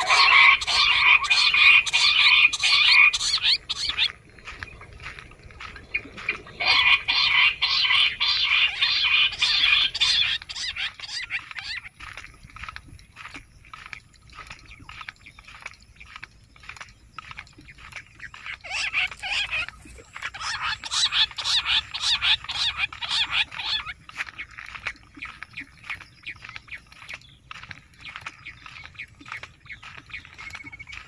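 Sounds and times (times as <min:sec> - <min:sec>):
quail calling: 0:00.0 - 0:04.6, 0:05.6 - 0:11.9, 0:18.4 - 0:24.5.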